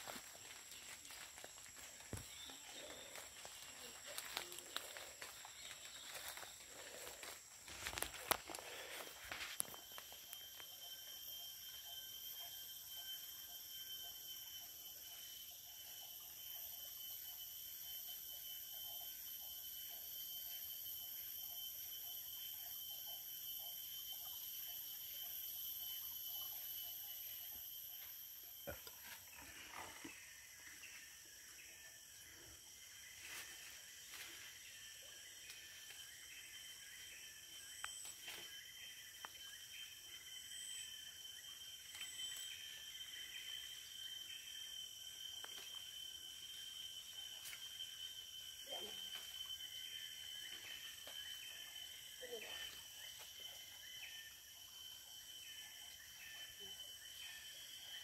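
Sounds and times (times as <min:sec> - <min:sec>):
insect chorus drones: 0:00.0 - 0:58.0.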